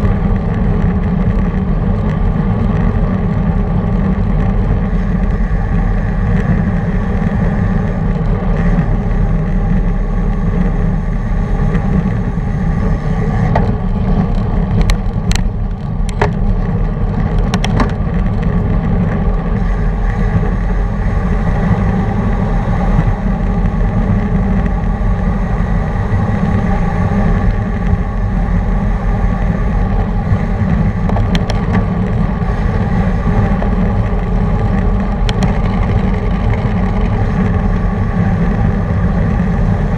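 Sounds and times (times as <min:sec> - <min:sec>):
bike tyres rolling on asphalt: 0:00.0 - 0:39.9
wind on microphone: 0:00.0 - 0:39.9.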